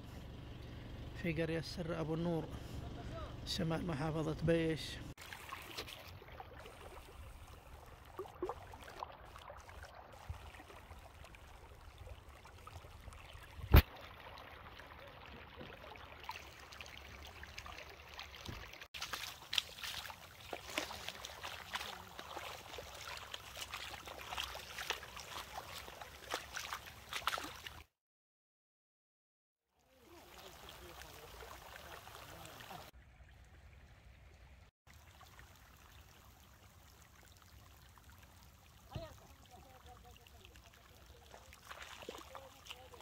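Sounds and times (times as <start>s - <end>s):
shallow water rushing over sand: 5.2s - 27.8s, 29.8s - 32.9s, 34.9s - 43.0s.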